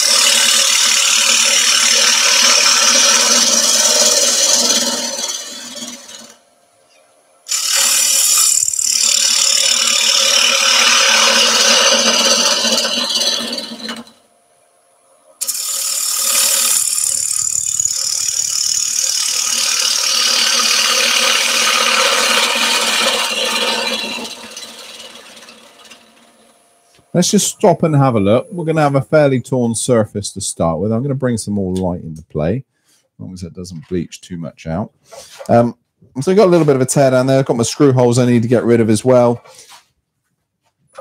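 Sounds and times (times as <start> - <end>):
gouge cutting spinning wood: 0.0 - 6.4, 7.5 - 14.2, 15.4 - 26.5
lathe humming: 0.0 - 6.4, 7.5 - 14.2, 15.4 - 26.5.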